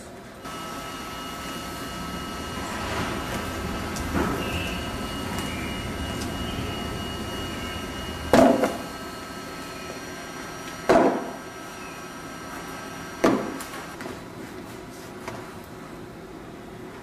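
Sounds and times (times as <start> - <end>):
scoring machine humming: 0.4 - 14.0.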